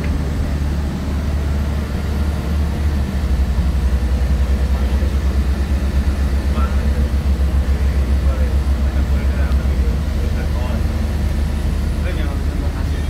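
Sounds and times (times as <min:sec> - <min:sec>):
bus engine rumble: 0:00.0 - 0:13.0.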